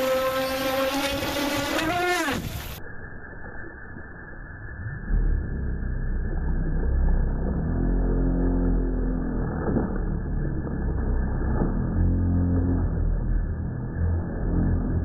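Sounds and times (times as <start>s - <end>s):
electric model boat motor: 0.0s - 2.8s, 6.5s - 15.0s
water spray from boat hull: 0.0s - 2.8s.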